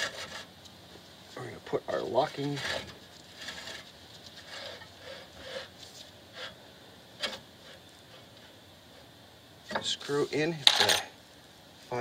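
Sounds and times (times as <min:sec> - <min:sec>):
faint rubbing and handling: 0:01.4 - 0:09.1.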